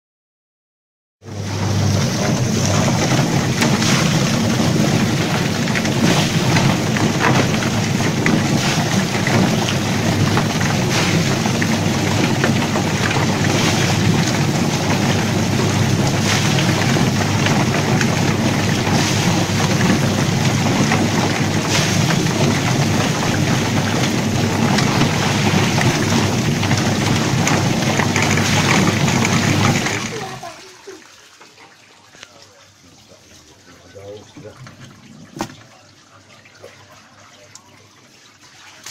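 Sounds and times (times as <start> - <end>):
rushing churning noise: 1.2 - 30.6.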